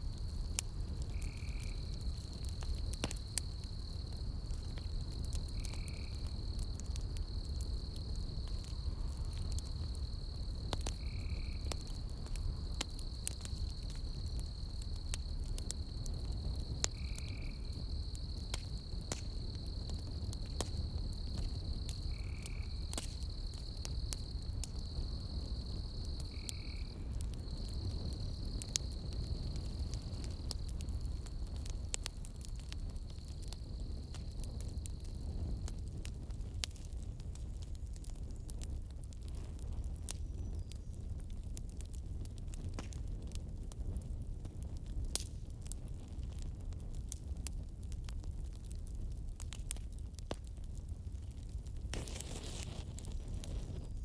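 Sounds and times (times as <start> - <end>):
campfire crackling and popping: 0.0 - 54.0
high insect trill: 13.0 - 31.8.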